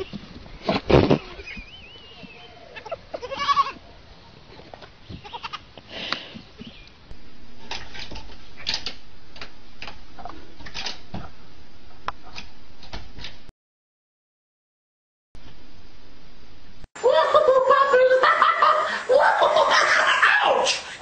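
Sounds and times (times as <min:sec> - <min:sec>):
steady hiss: 0:20.5 - 0:21.0.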